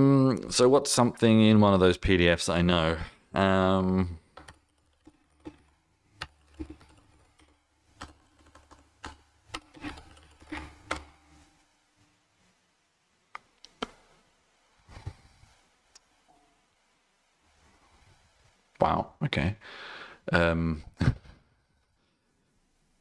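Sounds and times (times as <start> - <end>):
typing on keyboard: 4.4 - 11.0.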